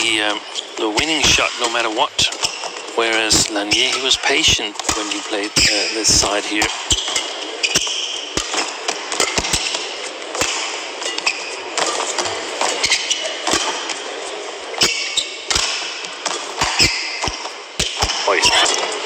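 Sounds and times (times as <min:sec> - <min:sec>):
shoe squeaks on court: 0:05.6 - 0:05.9, 0:12.7 - 0:13.7, 0:14.8 - 0:15.5, 0:16.6 - 0:17.2
racket striking shuttlecock: 0:06.6 - 0:14.0, 0:14.8 - 0:18.2
arena crowd noise: 0:18.1 - 0:19.0.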